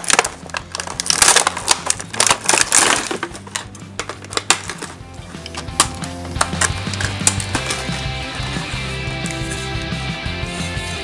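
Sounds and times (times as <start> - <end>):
scissors snipping plastic: 0.0 - 8.1
cardboard and plastic crackling: 0.0 - 9.9.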